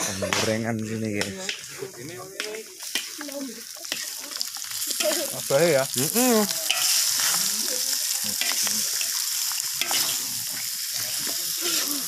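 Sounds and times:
meat sizzling in hot oil: 0:01.0 - 0:12.0.

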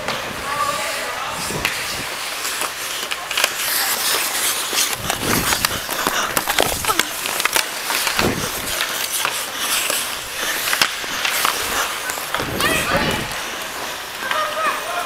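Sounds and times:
hockey sticks and puck clacking: 0:00.0 - 0:15.0
skates scraping on ice: 0:00.0 - 0:15.0.

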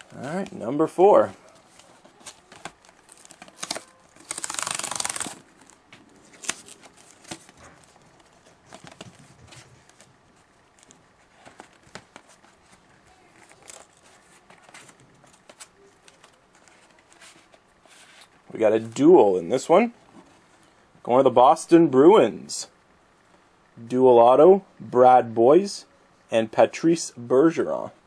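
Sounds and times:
wrapper crinkling: 0:01.6 - 0:10.1
cards clicking: 0:02.2 - 0:05.4
wrapper ripping open: 0:02.2 - 0:07.4.

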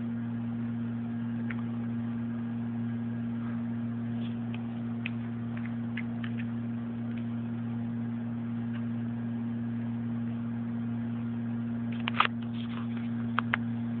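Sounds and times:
low hum: 0:00.0 - 0:14.0
clicks: 0:11.9 - 0:13.7.

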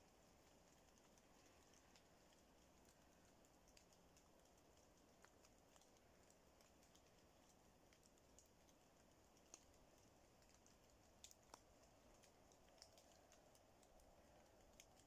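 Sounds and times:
low steady hiss: 0:00.0 - 0:15.0
raindrops ticking on leaves: 0:00.0 - 0:15.0.

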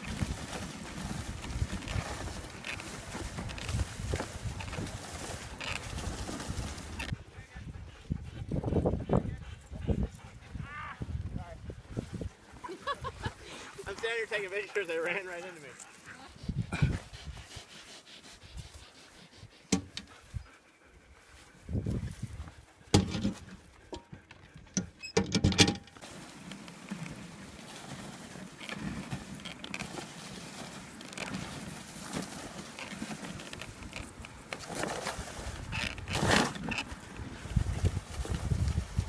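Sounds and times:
sled runners rushing on snow: 0:00.0 - 0:17.7, 0:26.0 - 0:39.0.

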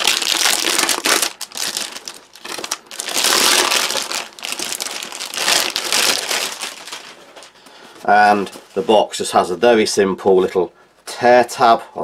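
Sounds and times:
cellophane crinkling: 0:00.0 - 0:09.1.

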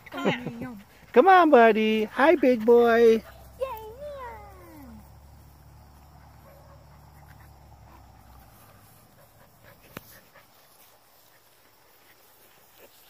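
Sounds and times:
puppies panting: 0:00.0 - 0:13.0.

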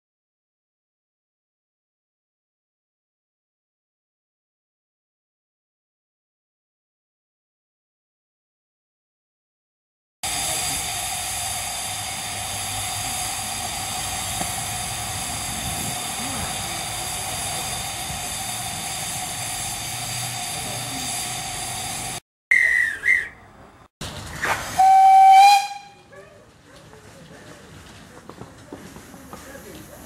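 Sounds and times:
steam hissing: 0:10.2 - 0:22.2
steam whistle blasts: 0:24.8 - 0:26.0.

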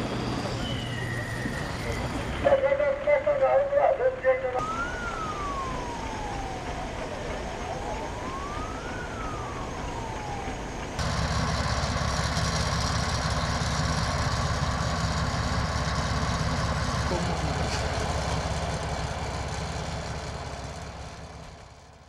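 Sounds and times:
engine running low hum: 0:00.0 - 0:22.0
noisy outdoor background: 0:00.0 - 0:22.0
siren wailing: 0:04.3 - 0:12.2.

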